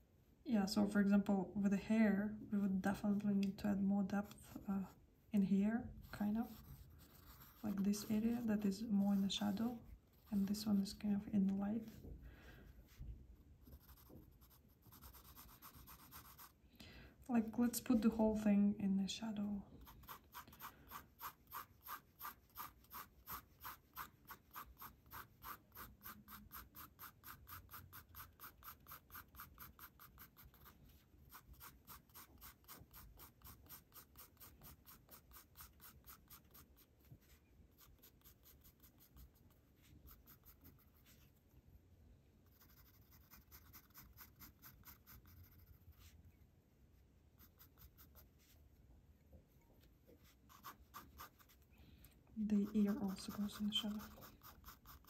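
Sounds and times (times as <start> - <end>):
pencil shading on paper: 6.0 - 11.0, 13.7 - 16.6, 19.8 - 36.9, 37.8 - 41.2, 42.5 - 46.1, 52.6 - 55.0.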